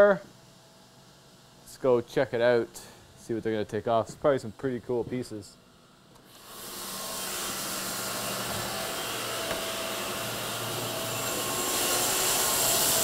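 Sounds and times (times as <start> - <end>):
bandsaw whirring: 6.2 - 13.0.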